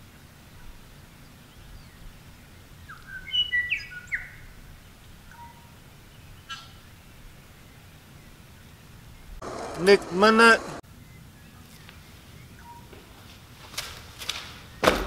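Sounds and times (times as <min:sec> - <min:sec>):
bird whistling call: 0:02.9 - 0:04.4, 0:12.5 - 0:12.9.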